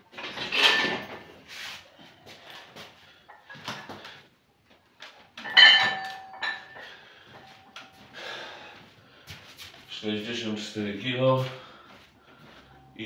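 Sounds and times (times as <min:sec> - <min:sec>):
barbell plates clanking on floor: 0:05.4 - 0:07.0.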